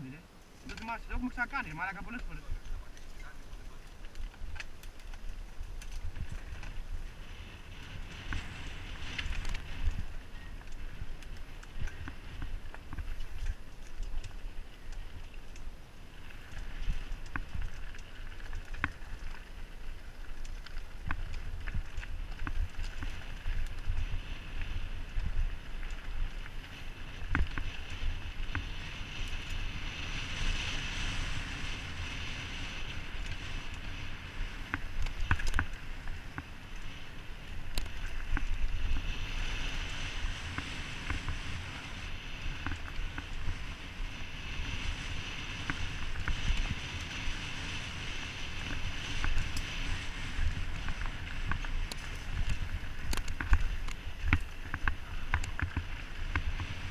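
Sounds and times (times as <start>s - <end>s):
bike rattling over bumps: 0.0s - 56.9s
wind buffeting microphone: 0.0s - 56.9s
tyres crunching on gravel: 32.7s - 56.9s.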